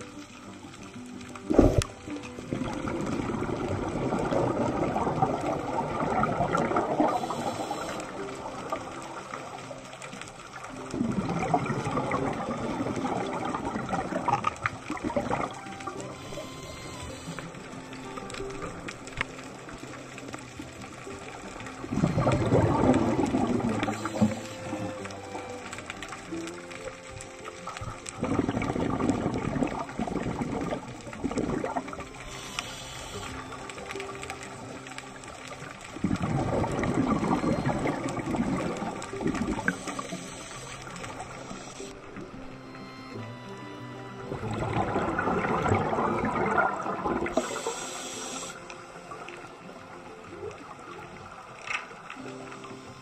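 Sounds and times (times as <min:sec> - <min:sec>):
underwater bubbles gurgling: 0:00.0 - 0:53.0
high hiss: 0:07.0 - 0:08.2, 0:32.2 - 0:33.7, 0:47.3 - 0:49.4.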